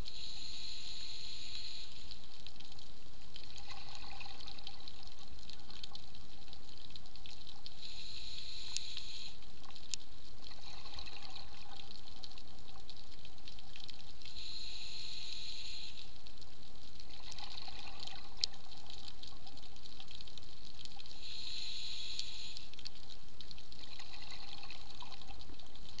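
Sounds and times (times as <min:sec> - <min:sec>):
regulator inhale hiss: 0:00.0 - 0:02.4, 0:07.7 - 0:09.5, 0:14.2 - 0:16.3, 0:21.0 - 0:22.8
exhaled air bubbling: 0:00.0 - 0:26.0
steady underwater hum: 0:00.0 - 0:26.0.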